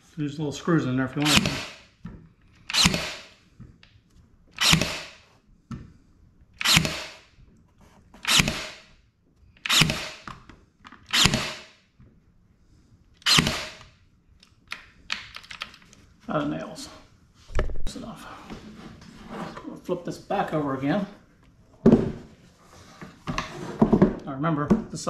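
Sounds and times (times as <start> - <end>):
pin nailer firing into wood: 1.2 - 1.8, 2.7 - 3.3, 4.6 - 5.2, 6.6 - 7.2, 8.2 - 8.9, 9.7 - 10.3, 11.1 - 11.8, 13.3 - 13.9.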